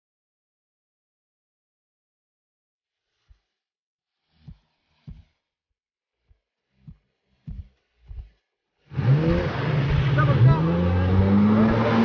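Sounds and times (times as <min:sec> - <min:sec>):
soft low thumps: 0:04.4 - 0:05.4, 0:06.2 - 0:08.5
engine revving: 0:06.2 - 0:12.0.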